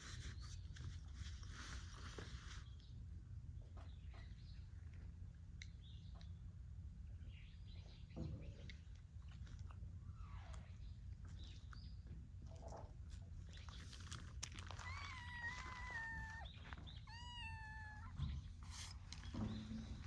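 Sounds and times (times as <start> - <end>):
cat meowing: 14.7 - 18.5.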